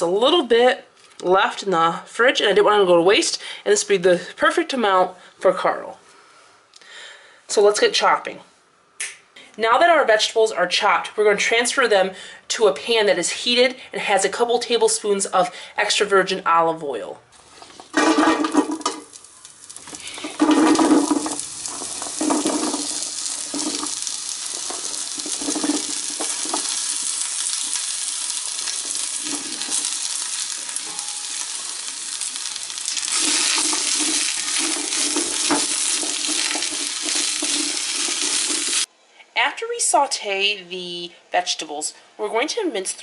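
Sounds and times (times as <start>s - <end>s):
vegetables sizzling in oil: 17.4s - 38.9s
spatula stirring strokes: 19.1s - 38.9s.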